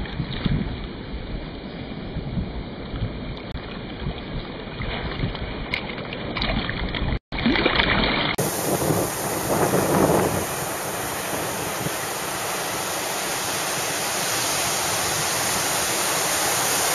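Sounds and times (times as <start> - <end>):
wind on microphone: 0.0 - 7.2, 8.4 - 16.9
small surf breaking: 7.6 - 16.9.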